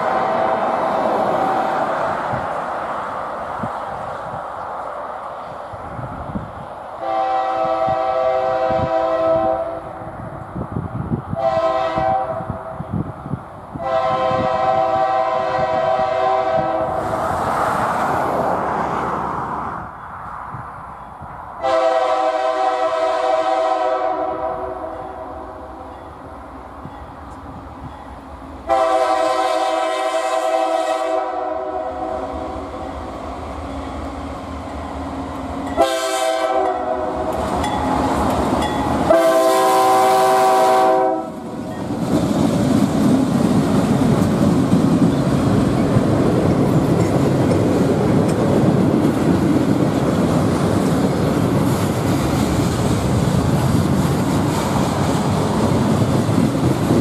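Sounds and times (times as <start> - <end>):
locomotive air horn blasts: 0.0 - 1.7, 7.0 - 10.0, 11.3 - 12.8, 13.8 - 17.0, 21.6 - 25.6, 28.7 - 32.8, 35.7 - 37.4, 39.0 - 41.4
train wheels on rails: 0.0 - 57.0.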